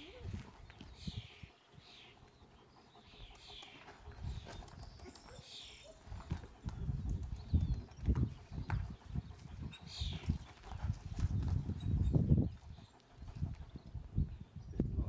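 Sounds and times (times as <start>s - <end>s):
wind rumbling on microphone: 0.0s - 1.6s, 4.0s - 15.0s
dog panting: 0.0s - 14.2s.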